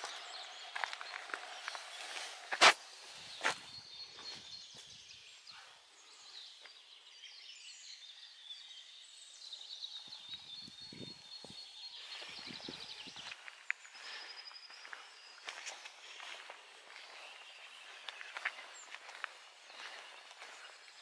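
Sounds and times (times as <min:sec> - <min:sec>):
footsteps: 0:00.0 - 0:04.4, 0:13.1 - 0:21.0
small birds chirping: 0:00.0 - 0:21.0.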